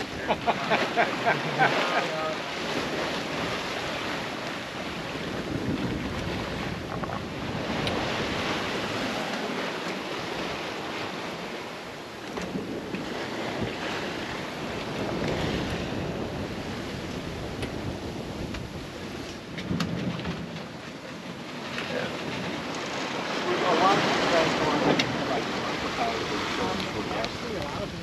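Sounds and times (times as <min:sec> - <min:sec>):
sea water rushing along hull: 0:00.0 - 0:28.0
wind buffeting microphone: 0:00.0 - 0:28.0.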